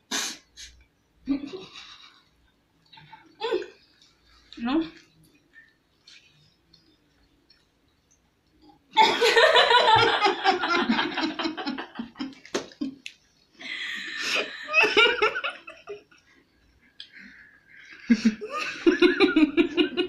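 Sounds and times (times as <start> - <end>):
woman laughing: 9.0 - 13.0, 14.0 - 16.0, 18.1 - 20.0.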